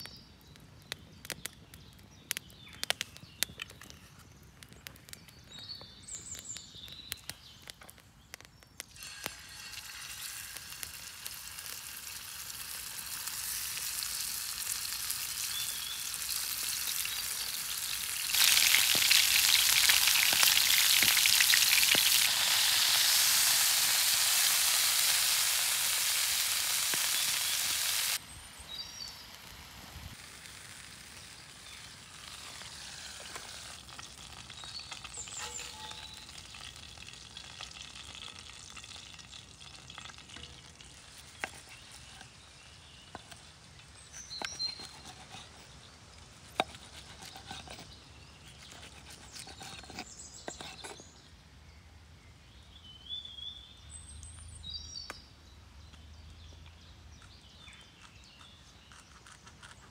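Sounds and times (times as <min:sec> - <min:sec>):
steaks sizzling in a pan: 0:09.0 - 0:28.2.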